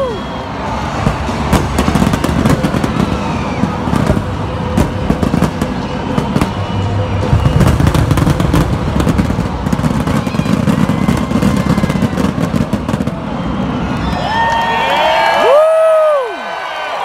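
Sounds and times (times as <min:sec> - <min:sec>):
fireworks cracking and crackling: 0:00.0 - 0:14.1
fireworks booming: 0:00.6 - 0:13.7.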